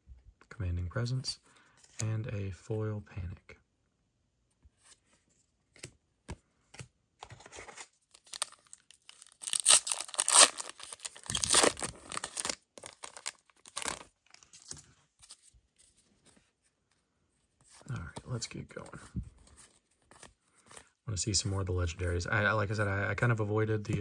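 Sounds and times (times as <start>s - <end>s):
wrapper ripping open: 8.1s - 14.4s.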